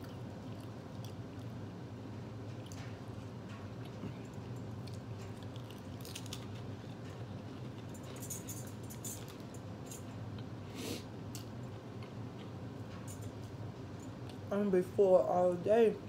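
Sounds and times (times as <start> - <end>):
chewing and crunching cracker: 0.0 - 10.6
air conditioner hum: 0.0 - 16.0.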